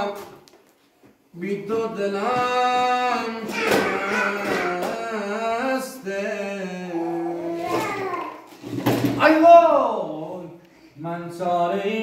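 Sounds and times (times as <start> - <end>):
person singing slow melody: 1.4 - 8.2.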